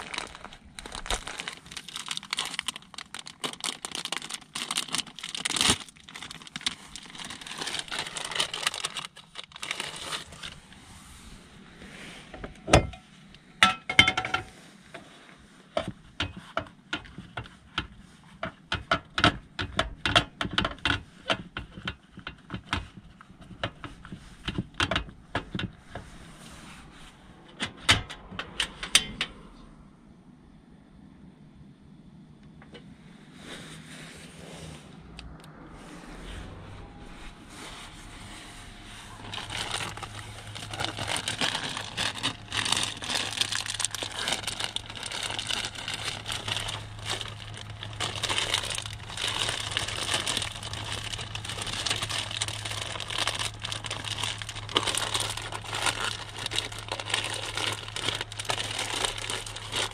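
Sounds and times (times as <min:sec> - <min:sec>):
food packaging crinkling: 0:00.0 - 0:10.7, 0:39.2 - 0:59.9.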